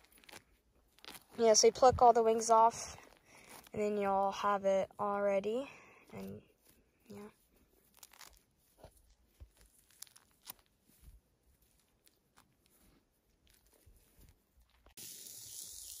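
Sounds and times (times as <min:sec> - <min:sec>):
meat sizzling on a grill: 0:15.0 - 0:16.0.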